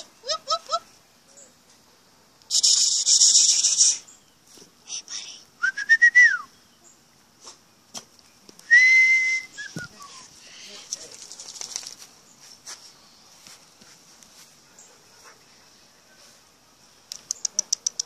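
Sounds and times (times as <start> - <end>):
steady high whistle: 8.7 - 10.0.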